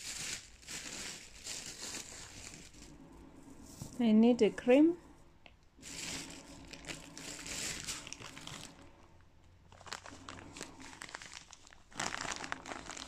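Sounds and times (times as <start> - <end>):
packaging crinkling: 0.0 - 2.9, 5.8 - 9.0, 9.7 - 13.0.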